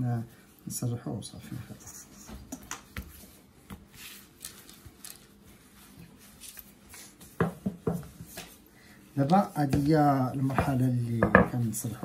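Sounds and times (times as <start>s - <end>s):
hands pressing dough: 6.9s - 8.6s, 9.2s - 12.0s.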